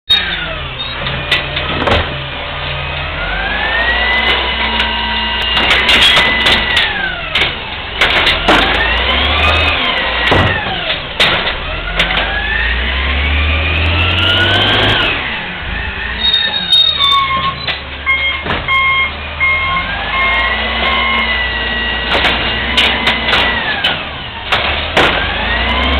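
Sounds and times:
cart and arm clanking: 0:00.1 - 0:12.6
garbage truck engine revving: 0:00.1 - 0:25.9.

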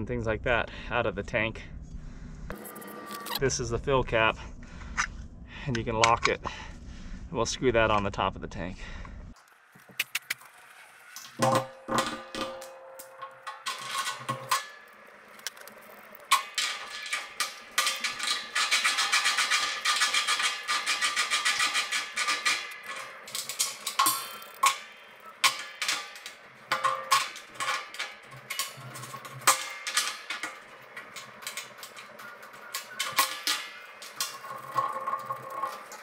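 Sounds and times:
metal clicks and scrapes: 0:09.4 - 0:36.0
rapid rattling clicks: 0:09.8 - 0:36.0.

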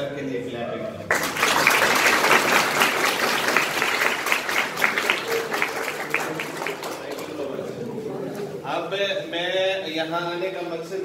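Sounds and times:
crowd applauding: 0:01.1 - 0:07.6.

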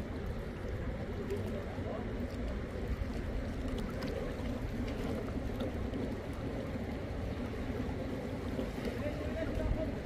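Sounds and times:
water rushing: 0:00.0 - 0:10.0.

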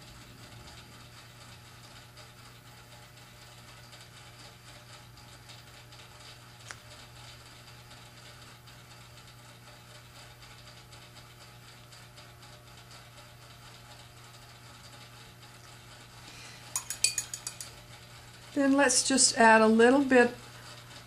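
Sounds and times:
steady low hum: 0:13.5 - 0:21.0.

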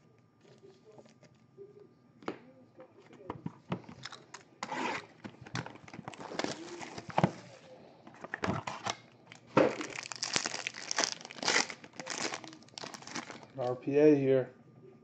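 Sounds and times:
foil wrapper crinkling: 0:05.5 - 0:07.2, 0:09.2 - 0:13.6
foil wrapper tearing: 0:05.7 - 0:07.1, 0:09.3 - 0:13.6.

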